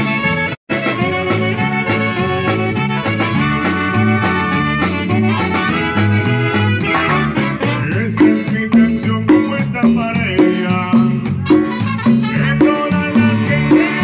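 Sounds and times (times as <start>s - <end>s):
saxophones playing melody: 0.0s - 8.2s, 11.4s - 14.0s
bass line: 0.0s - 14.0s
steady beat: 0.7s - 14.0s.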